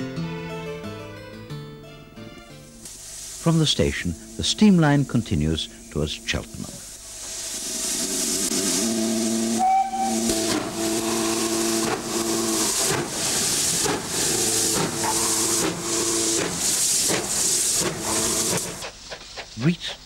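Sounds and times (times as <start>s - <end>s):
steam locomotive exhaust chuffing: 2.9s - 20.0s.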